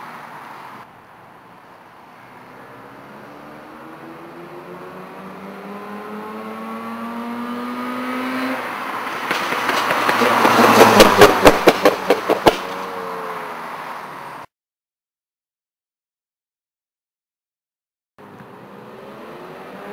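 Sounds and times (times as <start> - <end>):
rotary engine accelerating: 2.4 - 13.3, 18.5 - 19.9.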